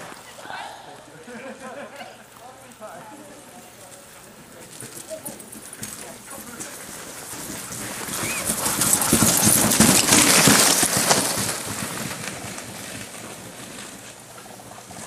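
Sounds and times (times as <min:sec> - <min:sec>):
dogs' paws pattering: 0:01.3 - 0:15.0
sled runners hissing on snow: 0:03.4 - 0:15.0.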